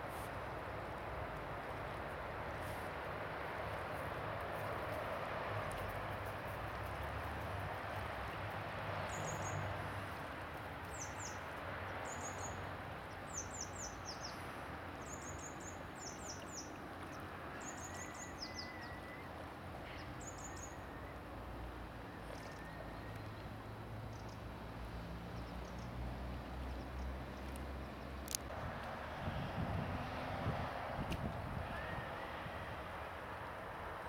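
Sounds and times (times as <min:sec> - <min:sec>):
songbird chirping: 0:10.8 - 0:21.3.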